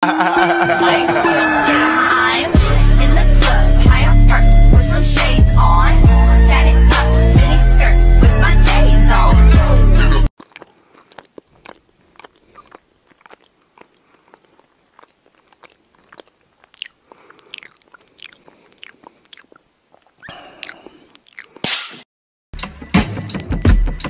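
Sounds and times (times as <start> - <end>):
person chewing bread: 10.3 - 21.7.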